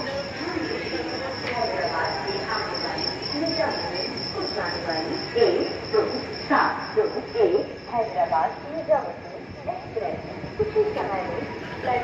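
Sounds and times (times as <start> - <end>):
crickets trilling: 0.0 - 12.0
people talking: 0.0 - 12.0.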